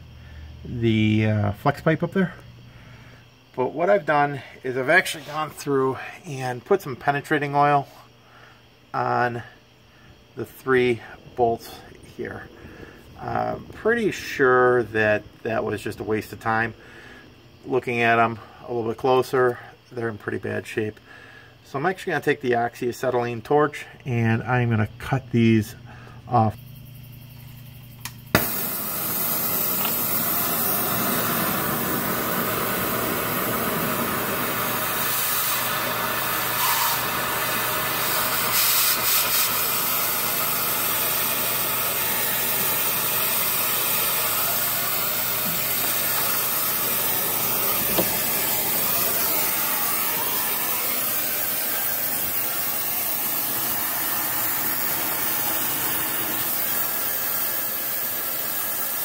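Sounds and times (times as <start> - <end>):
torch hissing: 28.0 - 59.0.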